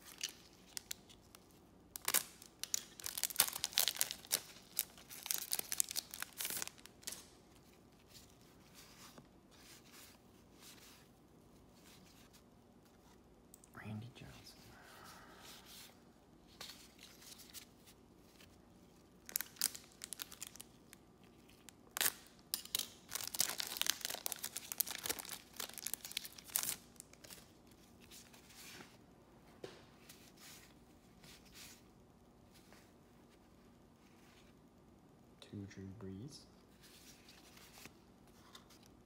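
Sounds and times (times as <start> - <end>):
trading cards rustling and sliding: 36.8 - 38.9.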